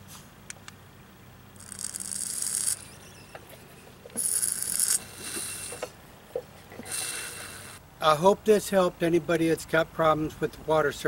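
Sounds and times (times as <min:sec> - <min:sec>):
outboard engine scraping hiss: 0:04.2 - 0:06.0, 0:06.8 - 0:07.8.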